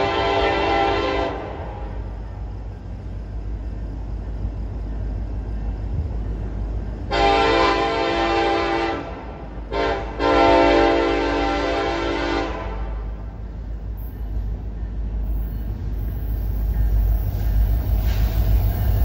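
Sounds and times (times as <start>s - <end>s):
locomotive air horn blasts: 0.0s - 2.0s, 7.1s - 13.1s
low train rumble: 0.0s - 19.0s.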